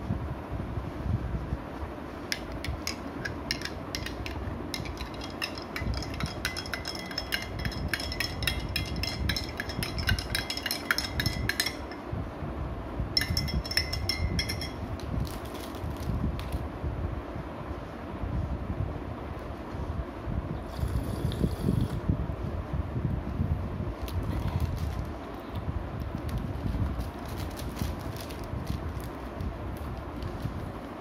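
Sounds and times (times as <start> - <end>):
spoon clinking against glass mug: 2.3 - 12.0, 13.2 - 14.9.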